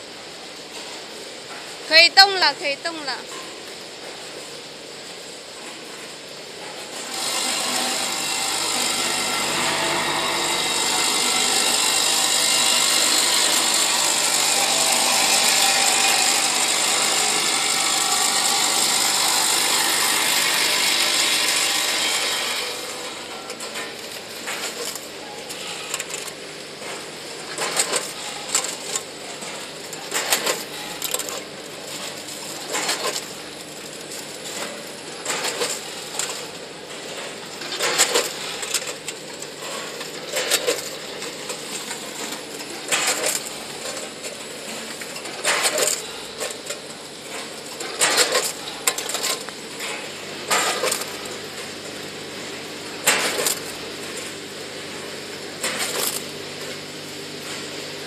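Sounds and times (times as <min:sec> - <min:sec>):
steady machine hum: 0:04.7 - 0:37.6.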